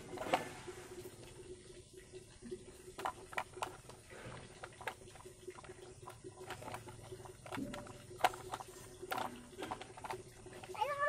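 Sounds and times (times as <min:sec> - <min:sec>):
plastic toys clicking on concrete: 0:02.9 - 0:04.0, 0:04.6 - 0:11.0.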